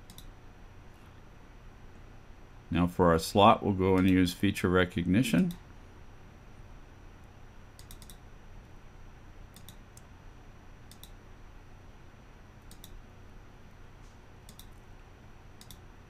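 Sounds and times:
computer mouse clicking: 0.0s - 0.3s, 7.8s - 8.2s, 9.5s - 10.1s, 10.9s - 11.2s, 12.6s - 13.0s, 14.4s - 14.8s, 15.6s - 15.8s
faint background hum: 0.0s - 16.0s.

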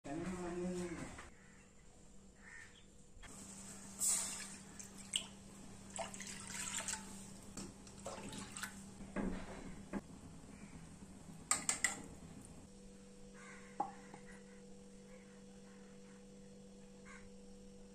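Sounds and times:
water splashing into metal pot: 4.0s - 8.8s.

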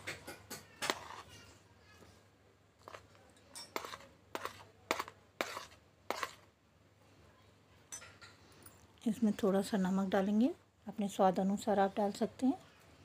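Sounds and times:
plate and spoons clinking on pan: 2.9s - 6.4s.

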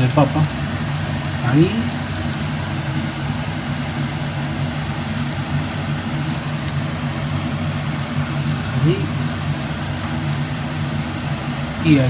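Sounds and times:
low mechanical hum: 0.0s - 12.0s
even hiss: 5.8s - 12.0s.

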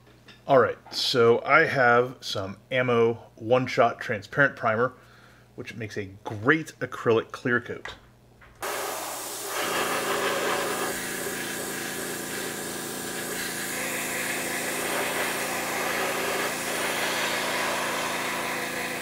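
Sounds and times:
air compressor humming: 8.6s - 19.0s
airbrush hissing: 8.6s - 19.0s.

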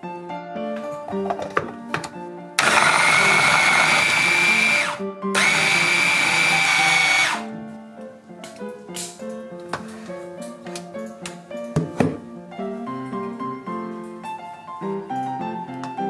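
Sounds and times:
electric hand blender whining: 2.6s - 7.5s.

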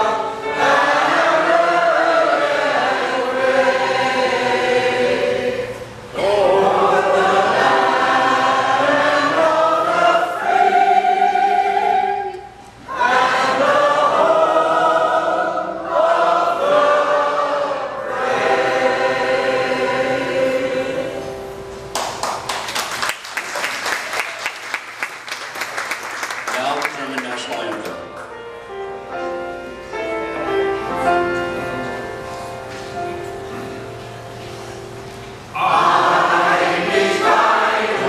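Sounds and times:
choir singing: 0.0s - 21.6s, 35.5s - 38.0s.

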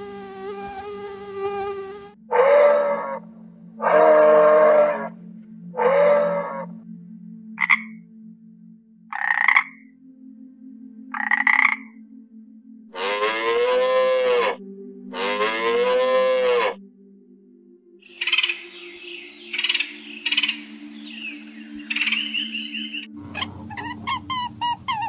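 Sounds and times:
cow mooing: 2.3s - 3.2s, 3.8s - 5.2s, 5.8s - 6.7s, 12.9s - 16.8s
frog croaking: 2.3s - 3.2s, 3.8s - 5.2s, 5.8s - 6.8s, 7.6s - 8.0s, 9.1s - 9.9s, 11.1s - 12.0s, 13.0s - 16.8s, 18.1s - 25.0s.

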